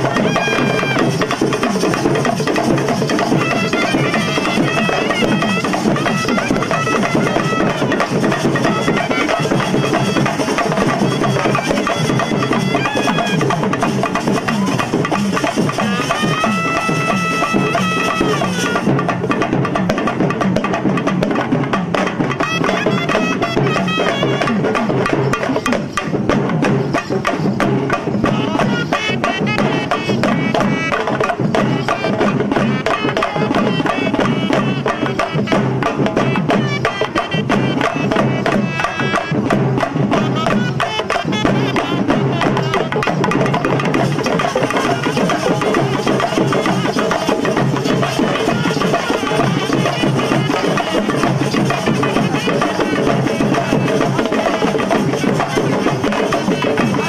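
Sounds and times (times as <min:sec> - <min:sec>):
shrill reed pipes melody: 0:00.0 - 0:01.6, 0:03.4 - 0:14.0, 0:15.9 - 0:19.1
drums beaten in fast rhythm: 0:00.0 - 0:57.0.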